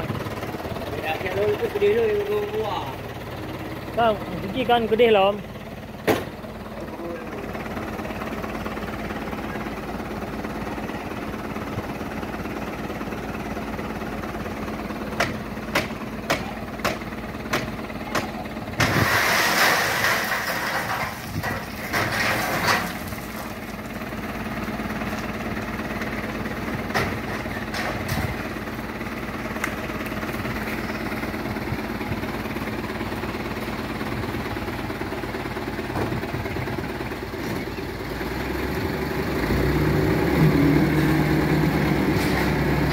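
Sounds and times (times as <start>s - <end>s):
truck engine idling: 0.0s - 42.9s
gravel spilling from truck: 18.7s - 24.3s.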